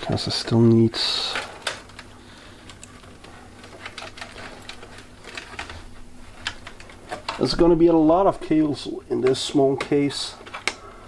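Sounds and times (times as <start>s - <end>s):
rustling of cables: 0.0s - 11.0s
light clicks of plastic parts: 1.2s - 5.8s, 9.2s - 10.9s.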